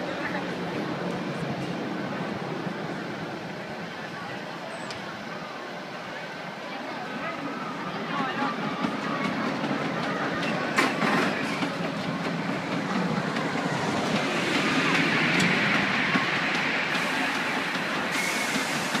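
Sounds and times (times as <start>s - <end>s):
roller coaster wheels clacking: 0.0s - 19.0s
rushing noise: 8.4s - 19.0s.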